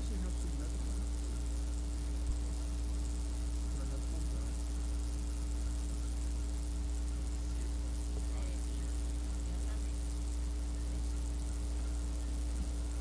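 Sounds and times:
constant tone: 0.0 - 13.0
electrical hum: 0.0 - 13.0
tape hiss: 0.0 - 13.0.

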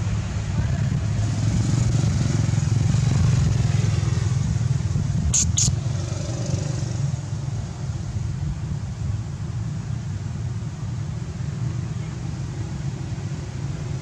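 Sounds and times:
short high-pitched chirps: 5.3 - 5.7.

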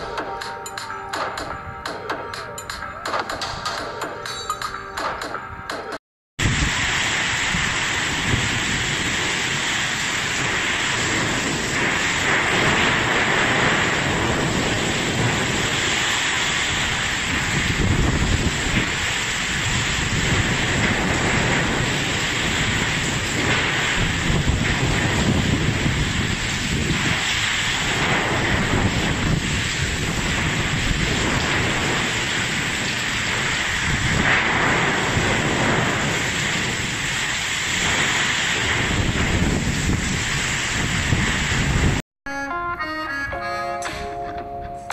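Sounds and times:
heavy rain: 0.0 - 4.3, 6.4 - 42.0
strong wind buffeting microphone: 6.4 - 42.0.

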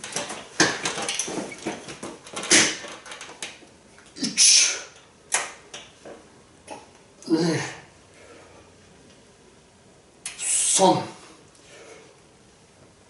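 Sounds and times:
man grunting: 7.2 - 7.9.

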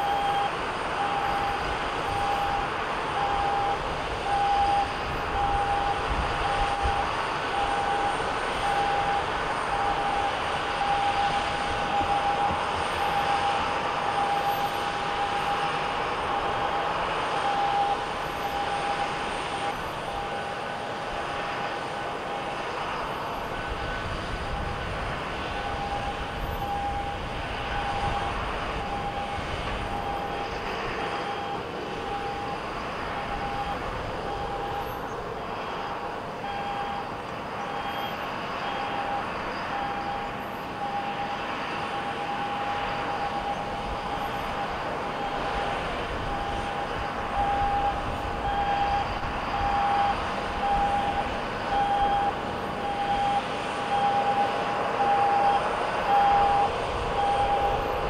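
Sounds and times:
jet engines running: 0.0 - 58.0.

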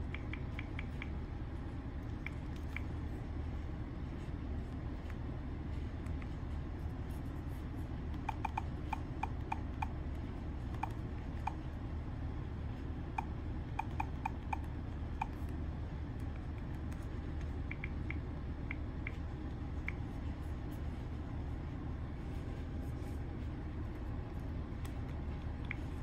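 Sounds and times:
low hum: 0.0 - 26.0.

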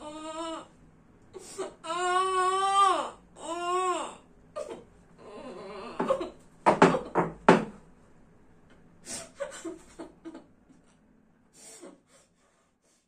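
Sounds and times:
woman whimpering: 1.4 - 6.3
breath: 11.6 - 13.0.

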